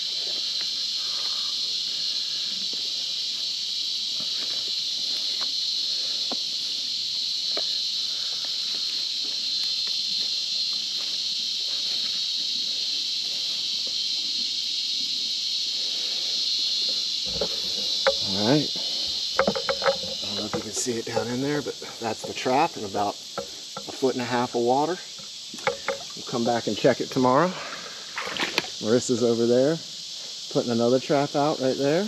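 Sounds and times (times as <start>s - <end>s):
insects droning: 0.0s - 32.0s
rope rustling: 16.1s - 24.0s.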